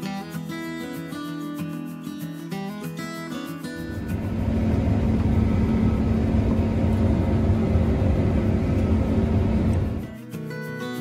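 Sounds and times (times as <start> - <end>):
combine harvester droning: 3.8 - 10.1.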